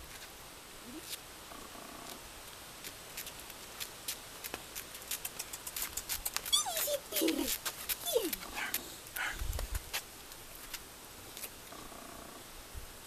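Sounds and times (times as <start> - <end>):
dog claws clicking on concrete: 2.8 - 8.8
puppy whining: 6.4 - 9.4.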